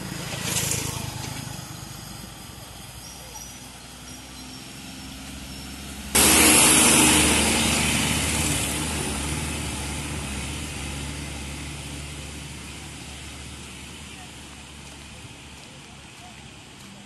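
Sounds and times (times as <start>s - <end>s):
engine hum: 0.0s - 17.0s
vehicle rushing past: 4.0s - 14.4s.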